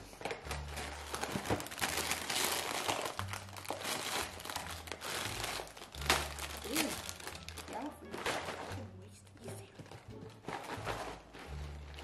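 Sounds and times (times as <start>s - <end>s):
cereal bag crinkling and tearing: 0.4s - 8.8s.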